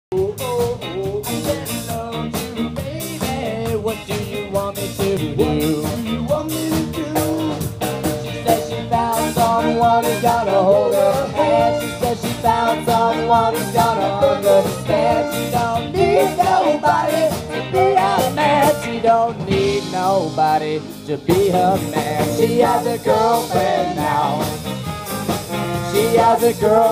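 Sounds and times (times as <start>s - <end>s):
drums: 0.1s - 26.9s
electric guitar: 0.1s - 26.9s
trumpet: 8.4s - 20.1s, 21.7s - 26.9s
tenor saxophone: 9.6s - 19.0s, 24.0s - 26.4s.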